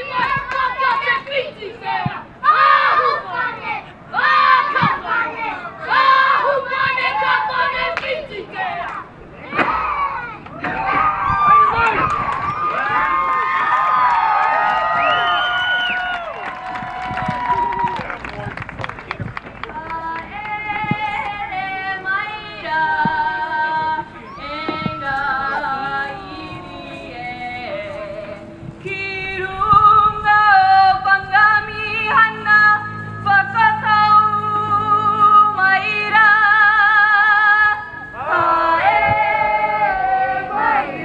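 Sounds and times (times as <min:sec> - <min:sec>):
women singing long held notes: 0:00.0 - 0:08.9, 0:19.7 - 0:41.0
low steady notes: 0:16.7 - 0:41.0.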